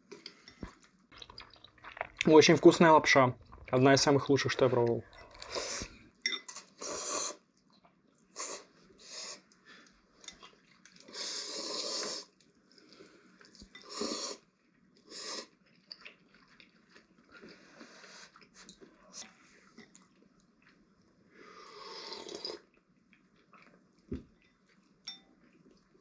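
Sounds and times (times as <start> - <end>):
people slurping noodles: 5.0 - 7.4, 11.0 - 12.4, 13.8 - 14.5, 21.5 - 22.7.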